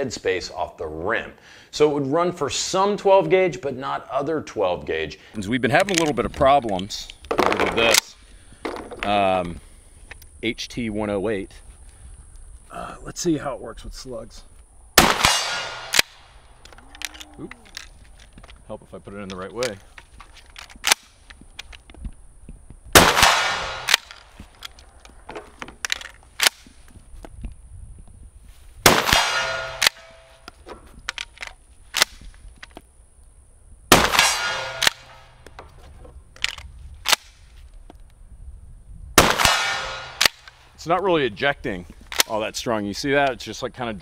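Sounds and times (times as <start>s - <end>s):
shotgun shots: 15.0s - 16.4s, 22.9s - 24.3s, 28.8s - 30.4s, 33.9s - 35.4s, 39.2s - 40.6s.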